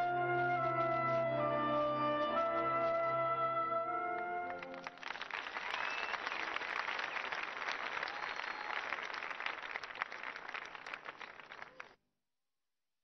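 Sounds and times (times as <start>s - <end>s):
crowd applauding: 4.1s - 12.0s.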